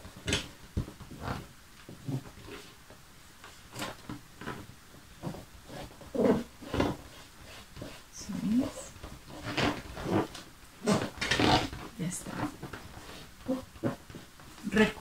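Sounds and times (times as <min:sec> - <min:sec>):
fingertips rubbing on a balloon: 0:05.1 - 0:15.0
rubbery squeaks: 0:05.2 - 0:15.0.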